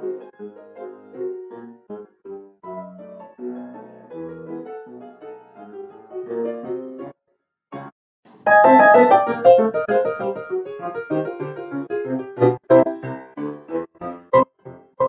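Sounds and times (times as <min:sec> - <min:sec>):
loud bright piano music: 0:00.0 - 0:07.1, 0:08.5 - 0:15.0
ragtime grand piano: 0:00.0 - 0:07.1, 0:08.5 - 0:15.0.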